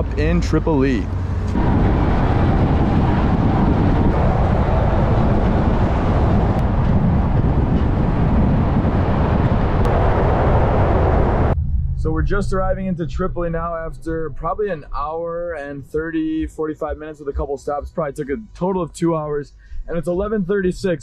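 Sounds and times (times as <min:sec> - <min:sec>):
wind and road noise: 0:00.0 - 0:15.0.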